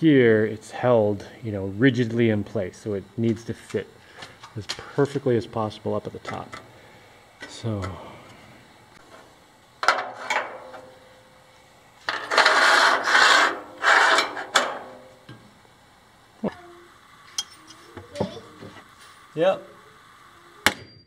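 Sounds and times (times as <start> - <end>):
board scraping against metal tubes: 12.1 - 14.9.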